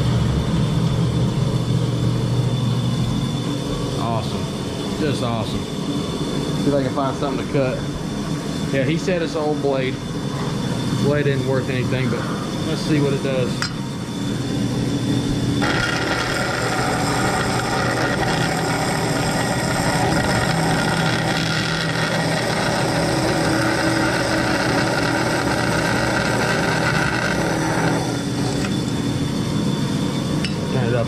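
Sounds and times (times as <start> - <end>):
bandsaw running: 11.0 - 29.7.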